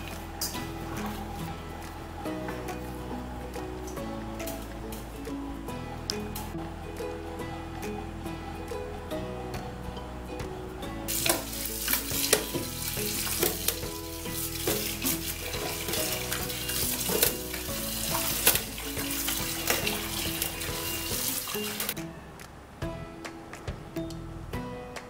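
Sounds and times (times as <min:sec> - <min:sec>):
background music with plucked notes: 0:00.0 - 0:25.0
hands squelching wet dough: 0:11.1 - 0:22.0
tap water running into steel bowl: 0:11.1 - 0:22.0
wet splashes: 0:11.1 - 0:22.0.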